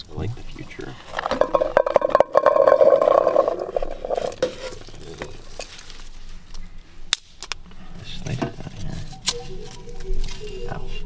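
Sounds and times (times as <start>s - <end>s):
berries clattering into metal pot: 1.0s - 5.9s.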